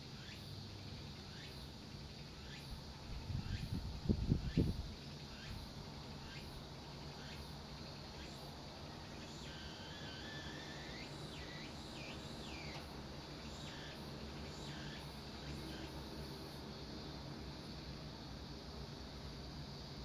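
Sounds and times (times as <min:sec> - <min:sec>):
droning insects: 0:00.0 - 0:20.0
wind rumbling on microphone: 0:03.0 - 0:05.0.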